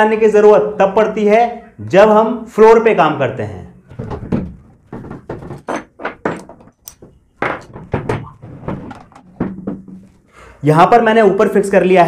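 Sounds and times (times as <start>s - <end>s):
tool set down on wood: 3.9s - 10.2s
plastic and metal parts clicking: 5.5s - 7.9s.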